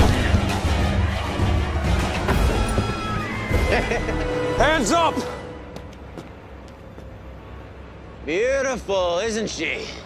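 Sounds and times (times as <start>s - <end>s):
action score music: 0.0s - 8.0s.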